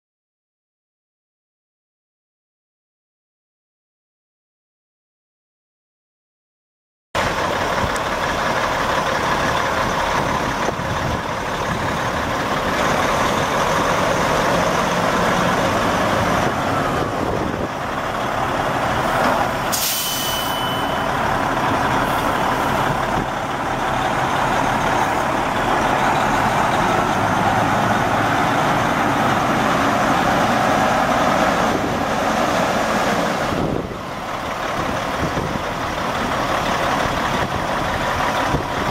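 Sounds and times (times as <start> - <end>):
diesel truck engine idling: 7.2 - 19.9, 20.7 - 38.9
air release hiss: 19.7 - 20.9.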